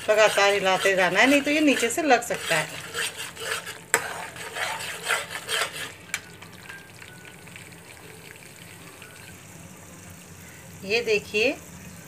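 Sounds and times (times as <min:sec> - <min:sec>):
metal spoon scraping pan: 0:00.0 - 0:06.4
soft sizzle of frying: 0:00.0 - 0:12.0.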